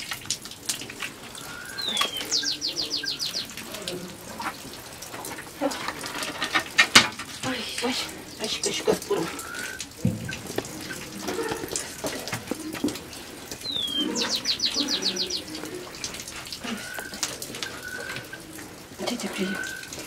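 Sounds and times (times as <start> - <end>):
small birds chirping: 1.3 - 4.7, 7.4 - 20.0
clicks and handling noise: 4.4 - 7.4.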